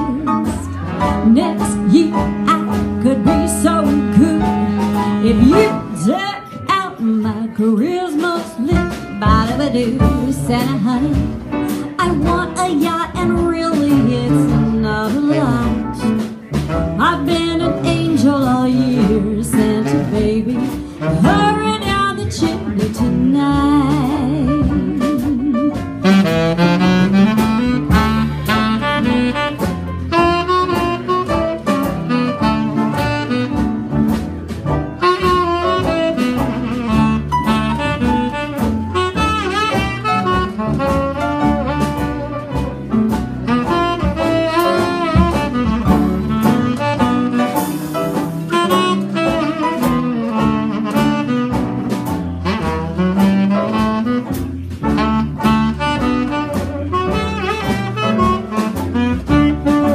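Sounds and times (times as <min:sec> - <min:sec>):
saxophone melody: 0:00.0 - 0:07.0, 0:24.0 - 0:59.9
bass line: 0:00.0 - 0:59.9
drums keeping a steady beat: 0:00.0 - 0:59.9.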